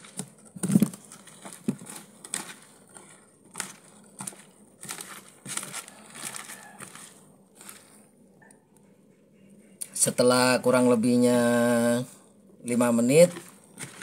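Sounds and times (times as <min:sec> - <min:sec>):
wet squelches of kneading: 0:01.0 - 0:08.2.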